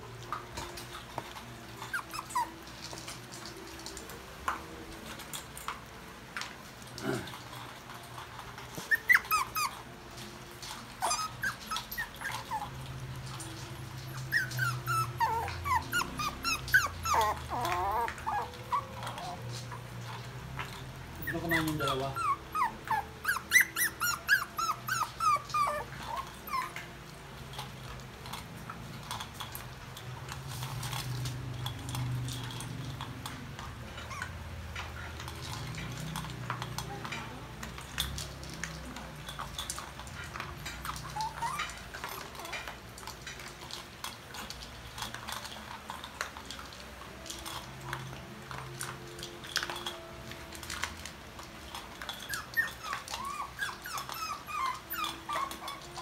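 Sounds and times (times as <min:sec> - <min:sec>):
puppies whining: 0:00.0 - 0:05.9, 0:06.8 - 0:56.0
dogs eating from metal bowl: 0:00.0 - 0:56.0
faint dog whimper: 0:01.8 - 0:04.1, 0:08.7 - 0:09.9, 0:10.7 - 0:20.4, 0:21.2 - 0:27.0, 0:39.8 - 0:42.8, 0:52.2 - 0:56.0.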